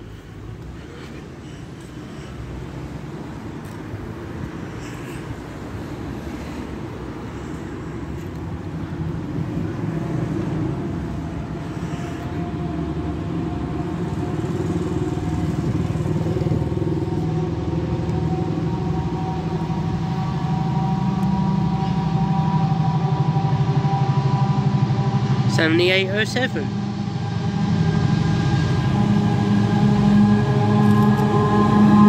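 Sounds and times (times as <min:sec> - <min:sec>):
diesel locomotive engine: 0:00.0 - 0:32.0
high engine whine: 0:00.0 - 0:32.0.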